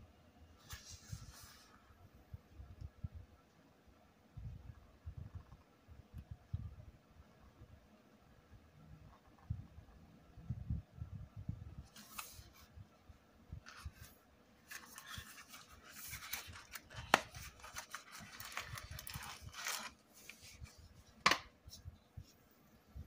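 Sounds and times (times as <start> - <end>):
cardboard rustling and scraping: 11.9 - 12.7, 13.7 - 21.3.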